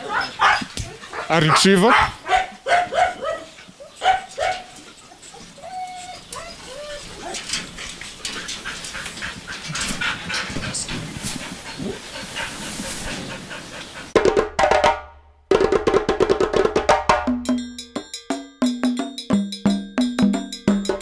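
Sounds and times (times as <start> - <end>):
music with wood block and drum: 14.2 - 21.0.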